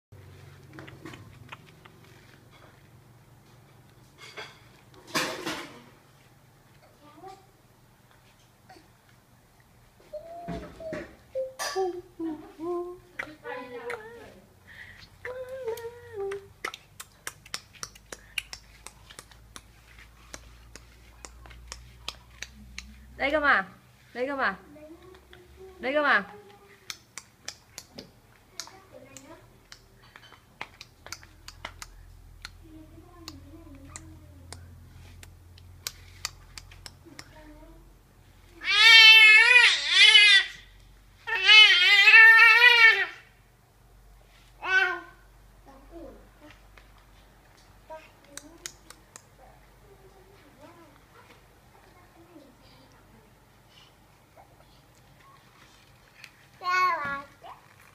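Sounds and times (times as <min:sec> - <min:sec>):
person humming: 0:10.1 - 0:14.4, 0:15.2 - 0:17.3.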